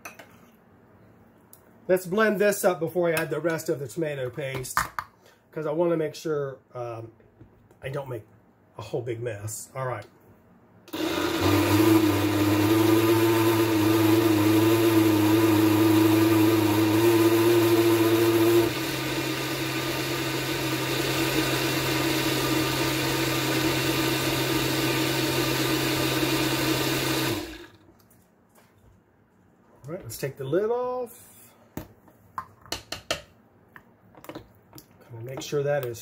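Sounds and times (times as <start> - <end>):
blender motor running: 10.9 - 27.8.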